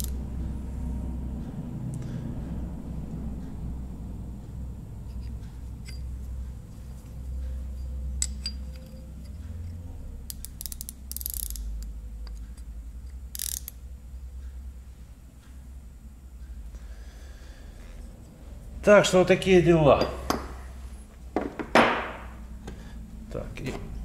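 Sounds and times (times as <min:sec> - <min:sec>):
micrometer ratchet clicking: 0:00.0 - 0:00.2, 0:10.2 - 0:13.8
steady low hum: 0:00.0 - 0:24.0.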